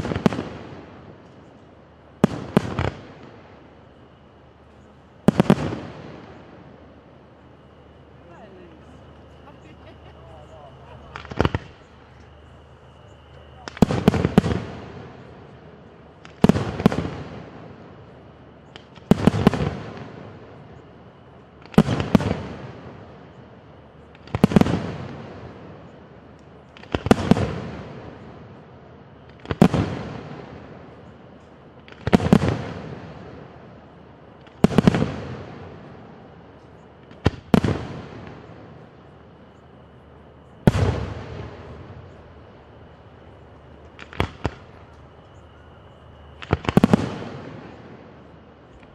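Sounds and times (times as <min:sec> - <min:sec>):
firework shells bursting: 0:10.9 - 0:17.6, 0:43.7 - 0:45.4, 0:46.4 - 0:48.0.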